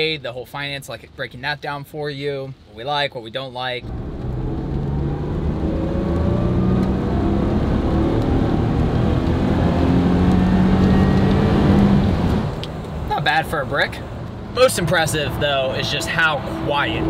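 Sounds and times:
car engine accelerating: 0:03.8 - 0:17.0
road rumble: 0:03.8 - 0:17.0.

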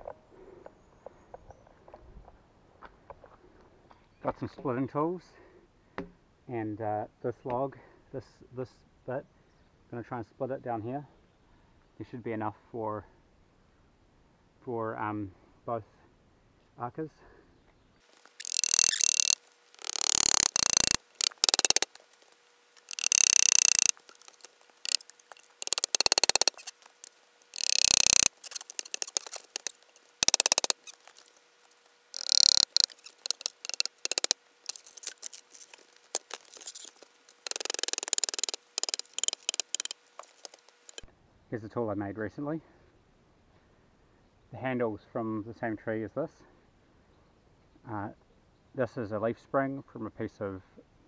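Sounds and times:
wood cracking and tearing: 0:18.1 - 0:41.1.

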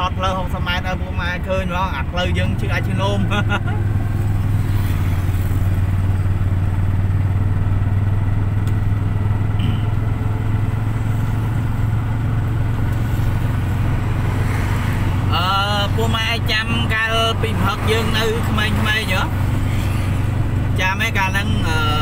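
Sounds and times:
vehicle engine and road noise: 0:00.0 - 0:22.0.

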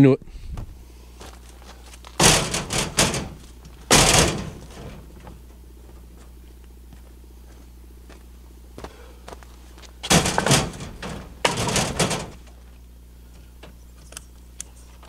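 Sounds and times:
dry wood cracking and knocking: 0:01.4 - 0:06.4, 0:10.0 - 0:12.6.

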